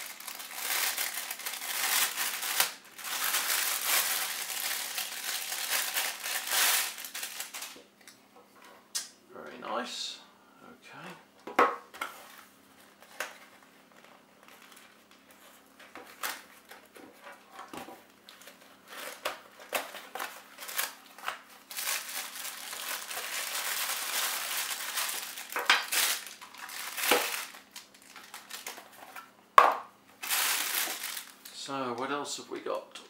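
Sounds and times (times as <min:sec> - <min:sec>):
plastic bag crinkling: 0:00.0 - 0:07.8, 0:12.3 - 0:16.8, 0:18.3 - 0:29.2, 0:30.2 - 0:31.5.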